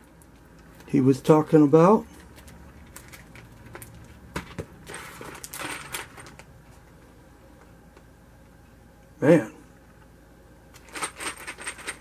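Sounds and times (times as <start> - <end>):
plastic bag crinkling: 2.1 - 6.5.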